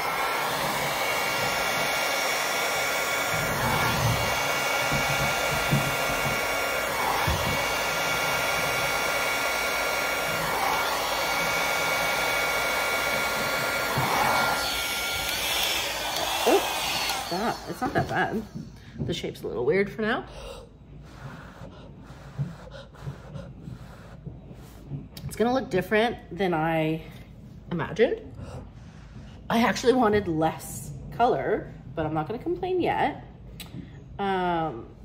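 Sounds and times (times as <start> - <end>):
hairdryer running: 0.0 - 20.2.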